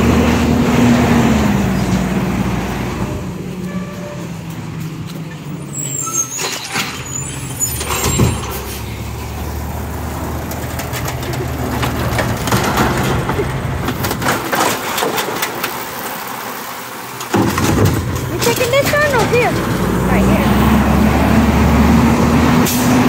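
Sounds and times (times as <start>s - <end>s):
garbage truck engine running: 0.0s - 23.0s
metal clanks and knocks: 10.5s - 15.8s, 17.2s - 19.9s.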